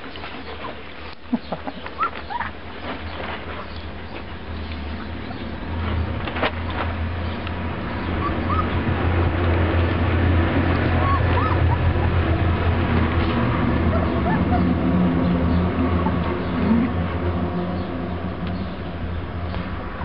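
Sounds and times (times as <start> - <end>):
low rumble and rustling: 0.0 - 20.0
puppies squeaking and whimpering: 1.6 - 3.8, 7.8 - 10.0, 10.6 - 17.0.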